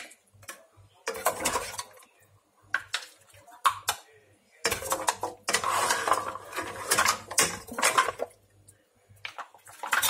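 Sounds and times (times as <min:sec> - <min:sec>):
metal ladle scraping a pot: 0:04.7 - 0:08.2.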